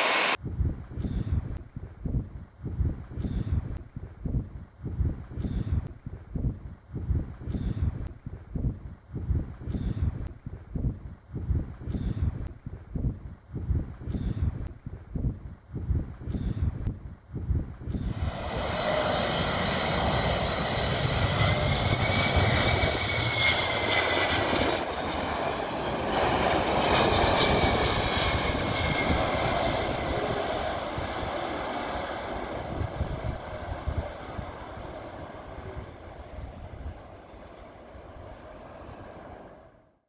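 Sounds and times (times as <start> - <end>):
jet engine roar and whine: 0.0 - 0.4, 17.9 - 40.0.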